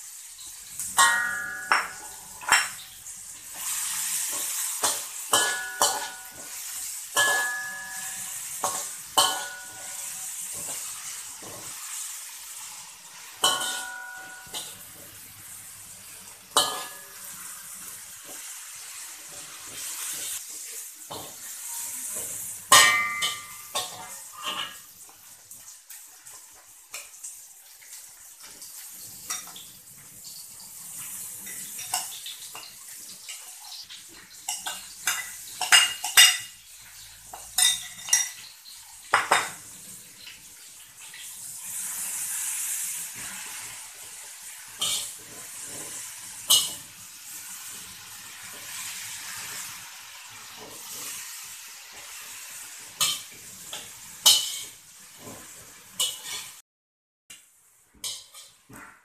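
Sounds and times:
food sizzling in hot oil: 0.0s - 56.6s, 57.3s - 58.9s
metal spatula scraping wok: 3.5s - 12.1s, 16.6s - 17.7s, 21.1s - 24.8s, 53.0s - 56.6s.

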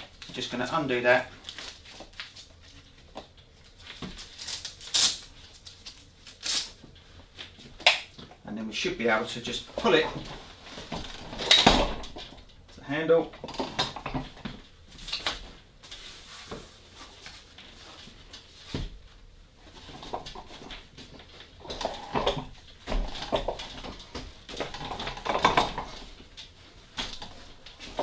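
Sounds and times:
metal frame clicking and rattling: 9.8s - 12.6s, 19.7s - 28.0s.

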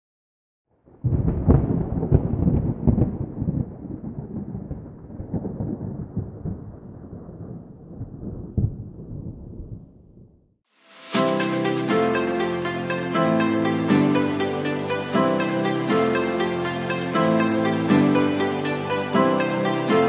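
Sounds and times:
thunder rumble with sharp cracks: 0.8s - 10.6s.

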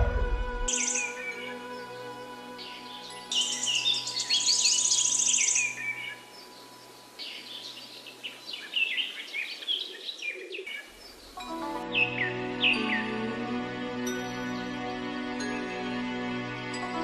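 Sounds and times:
birds chirping and calling: 0.7s - 13.2s.

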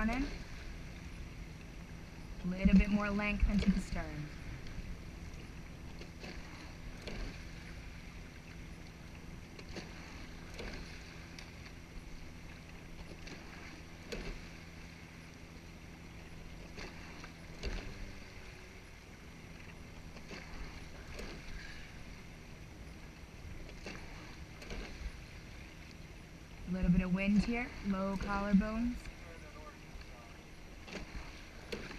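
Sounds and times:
faint steady hum: 0.0s - 31.9s
water rushing past hull: 0.0s - 31.9s
oars knocking in oarlocks: 5.4s - 7.5s.

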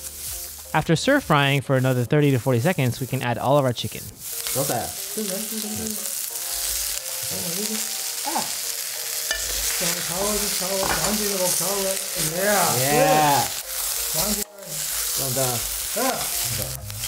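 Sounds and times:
chicken sizzling in hot oil: 0.0s - 17.0s
metal spatula scraping wok: 1.8s - 5.6s.

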